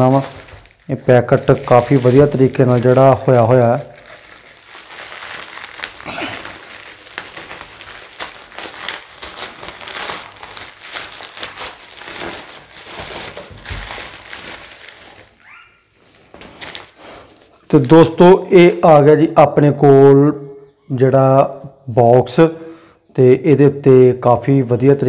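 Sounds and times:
plastic bag crinkling and tearing: 0:00.0 - 0:19.0.

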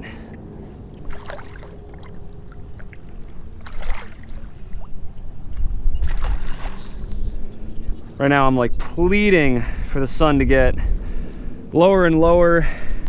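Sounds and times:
water splashing and sloshing: 0:00.0 - 0:07.5.

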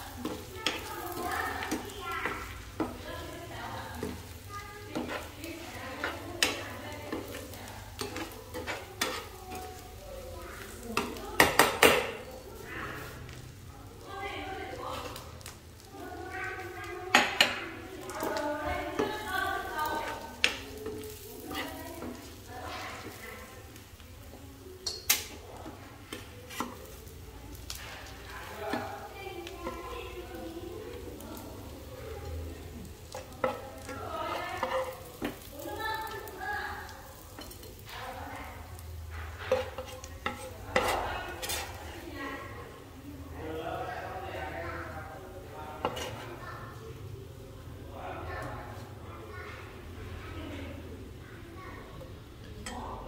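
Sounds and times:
sauce sizzling in frying pan: 0:00.0 - 0:53.0
metal spoon scraping a pan: 0:00.1 - 0:10.0, 0:16.6 - 0:31.8, 0:32.6 - 0:42.4, 0:45.7 - 0:46.7
spoon clinking against pan: 0:24.8 - 0:25.4.

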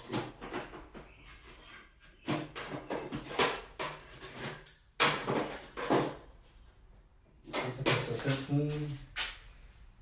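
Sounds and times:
nuts and bolts rattling: 0:00.0 - 0:01.1, 0:01.8 - 0:06.4.

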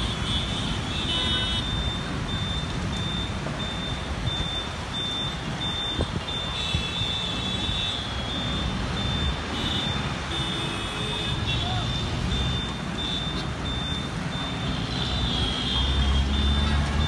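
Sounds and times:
dense road traffic: 0:00.0 - 0:17.0
high-pitched electronic beeps: 0:01.6 - 0:06.8, 0:08.0 - 0:10.1, 0:12.3 - 0:14.9, 0:15.9 - 0:16.7.

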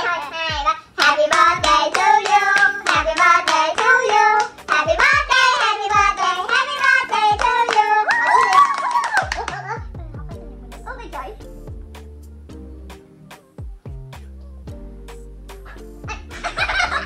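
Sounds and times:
low thumping beat: 0:00.4 - 0:03.4, 0:04.6 - 0:06.4, 0:07.3 - 0:07.6, 0:09.2 - 0:17.0
hand clapping: 0:01.0 - 0:09.8.

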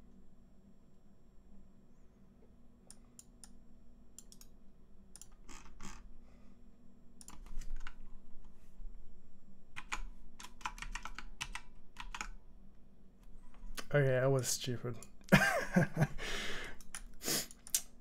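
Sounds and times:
faint steady hum: 0:00.0 - 0:18.0
typing on a keyboard: 0:07.2 - 0:08.0, 0:09.8 - 0:12.4.

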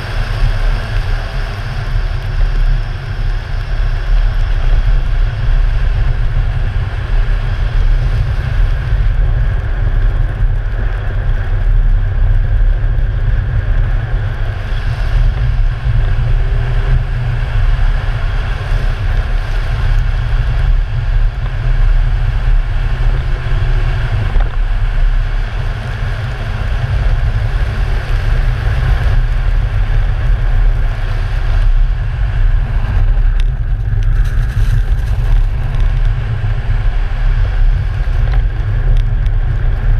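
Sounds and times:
tyre and road noise: 0:00.0 - 0:39.9
wind buffeting microphone: 0:00.0 - 0:39.9.

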